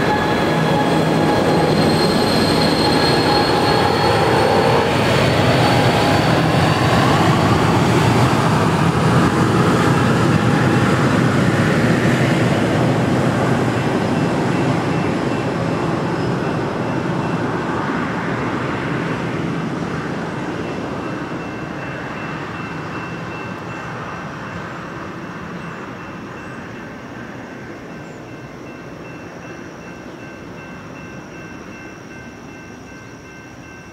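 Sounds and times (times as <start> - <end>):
faint level-crossing bell: 0.0 - 5.3, 14.0 - 18.0, 20.6 - 33.9
passenger train wheels rolling: 0.0 - 21.0.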